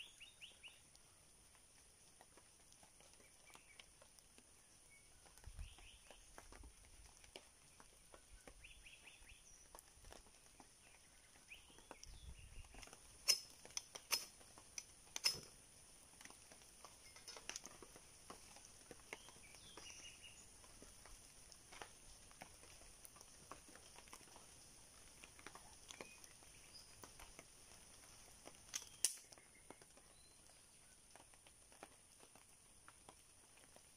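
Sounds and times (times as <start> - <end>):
bird chirps: 0.0 - 0.9
drizzle patter: 0.0 - 33.9
knife scraping fire-starter rod: 13.2 - 15.6.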